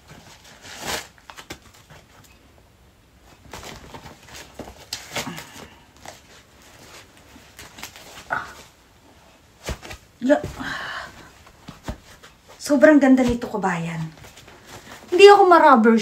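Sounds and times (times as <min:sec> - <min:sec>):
sneaker handling rustles and clicks: 0:09.4 - 0:12.6.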